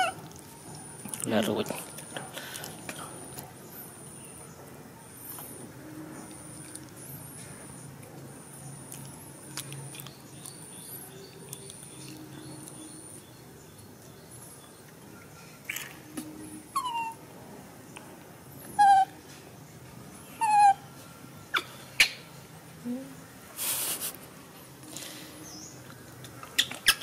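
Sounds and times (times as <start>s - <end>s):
baby monkey whimpering squeals: 0.0s - 0.2s, 16.7s - 17.2s, 18.7s - 19.2s, 20.4s - 20.8s.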